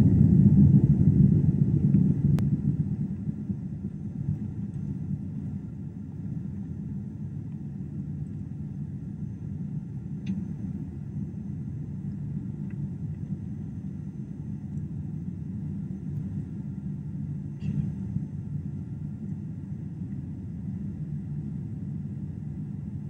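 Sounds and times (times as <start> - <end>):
airliner cabin engine rumble: 0.0 - 23.0
faint click: 10.2 - 10.5.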